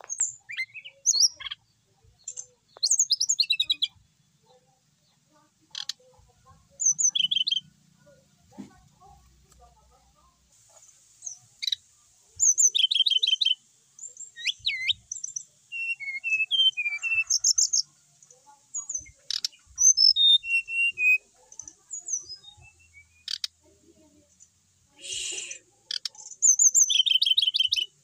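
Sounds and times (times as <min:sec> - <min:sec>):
bird singing chirps and whistles: 0:00.0 - 0:01.6, 0:02.3 - 0:03.9, 0:06.8 - 0:07.7, 0:12.4 - 0:17.8, 0:18.8 - 0:21.2, 0:21.9 - 0:23.5, 0:25.0 - 0:28.0.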